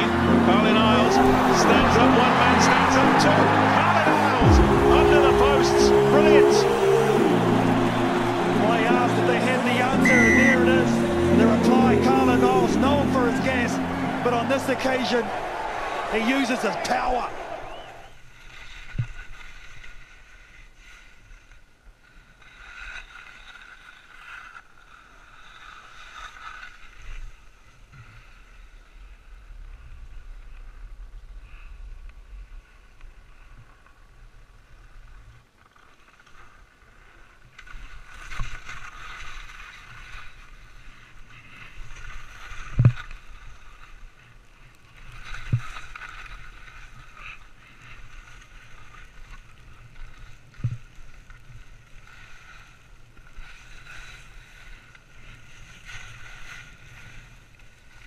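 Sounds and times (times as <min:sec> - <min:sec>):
skis swishing through snow: 0:11.4 - 0:29.0, 0:35.6 - 0:58.0.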